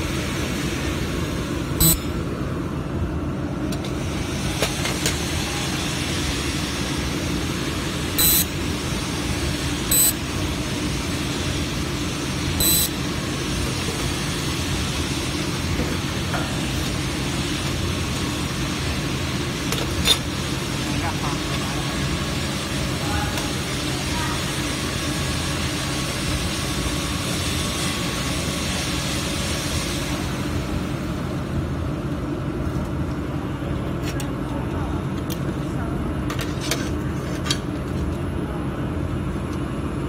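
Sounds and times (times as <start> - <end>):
steady machine hum: 0.0 - 40.0
laser welder high-pitched bursts: 1.8 - 2.4, 5.7 - 15.6.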